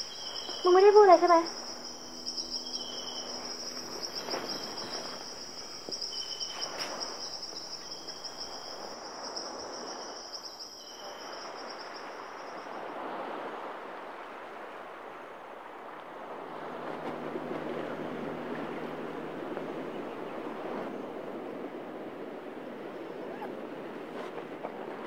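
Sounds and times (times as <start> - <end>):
lower chirp: 0.0 - 12.1
crickets trilling: 0.0 - 13.8.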